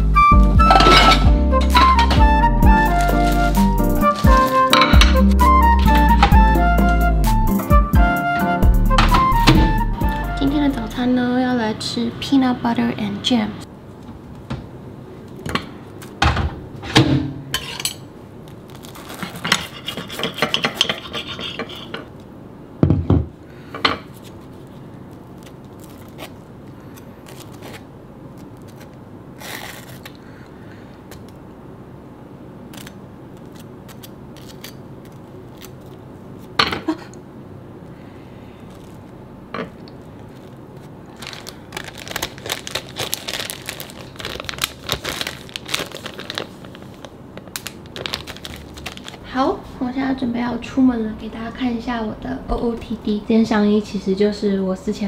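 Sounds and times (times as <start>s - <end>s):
plastic bag crinkling: 18.4s - 19.5s, 24.6s - 30.3s, 39.8s - 49.4s
knife scraping spread on bread: 19.0s - 22.0s.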